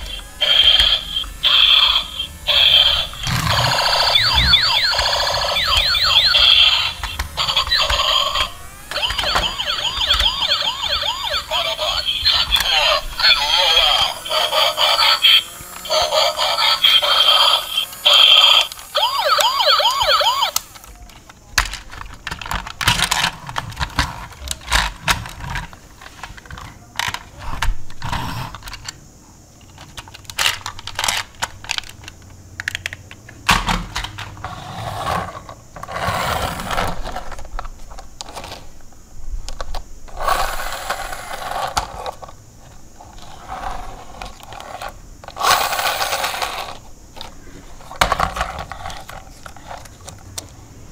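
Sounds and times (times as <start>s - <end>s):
warbling electronic toy tone: 0.0s - 20.6s
plastic toy cars clicking: 0.0s - 29.0s, 29.6s - 34.5s, 35.1s - 38.7s, 39.4s - 50.6s.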